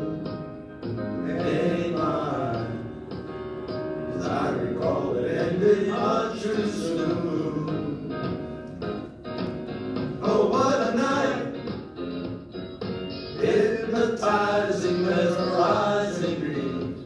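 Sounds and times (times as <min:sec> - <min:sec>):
choir singing: 0:01.2 - 0:03.0, 0:04.1 - 0:08.2, 0:10.2 - 0:11.6, 0:13.4 - 0:16.9.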